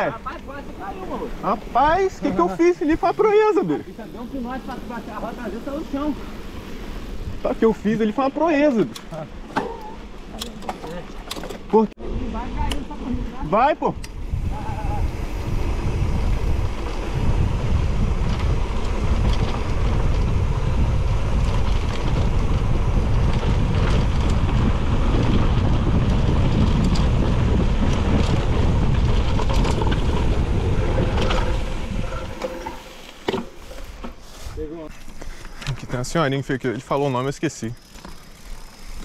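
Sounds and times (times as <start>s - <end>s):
wind buffeting microphone: 0.0s - 8.7s, 12.0s - 35.9s
bike tyre rumble on trail: 0.0s - 39.0s.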